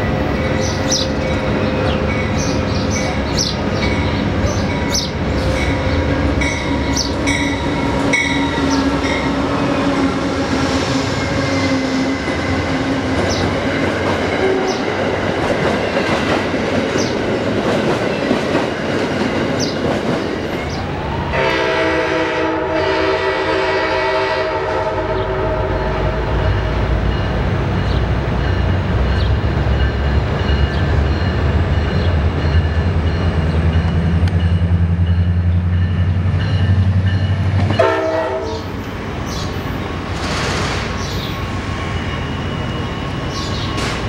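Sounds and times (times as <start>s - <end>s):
train chord horn: 14.4s - 14.9s, 21.3s - 26.8s, 37.7s - 38.7s.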